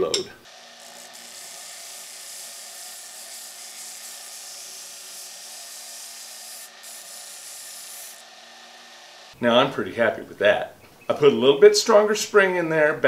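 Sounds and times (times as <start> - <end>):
grinder motor humming: 0.4 - 9.4
metal bar grinding on belt: 0.5 - 8.3.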